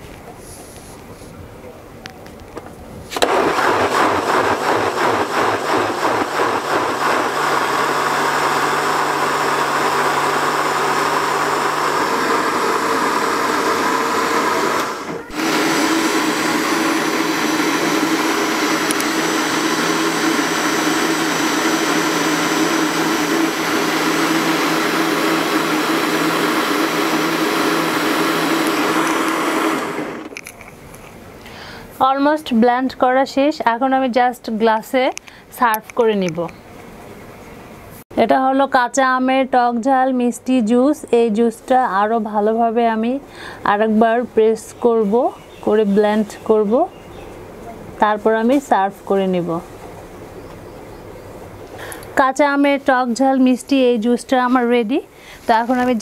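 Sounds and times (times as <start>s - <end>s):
electric blender whirring: 3.2s - 30.3s.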